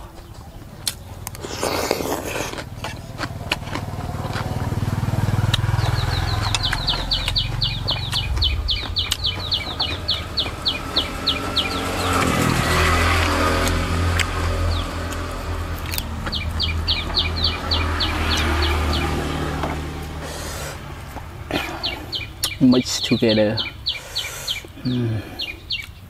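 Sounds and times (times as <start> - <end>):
crunch of raw vegetable bitten: 0.8 - 5.8
engine running: 2.6 - 22.5
rapid high chirping trill: 5.6 - 12.2.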